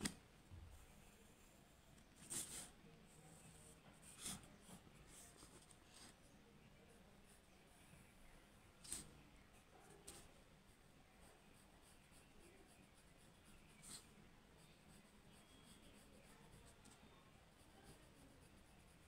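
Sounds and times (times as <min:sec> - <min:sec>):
pencil scratching on paper: 0:02.0 - 0:06.2, 0:08.8 - 0:19.0.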